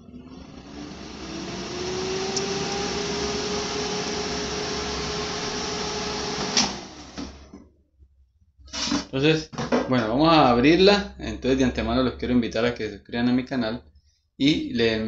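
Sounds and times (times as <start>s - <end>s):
air fryer fan motor humming: 0.0s - 7.5s.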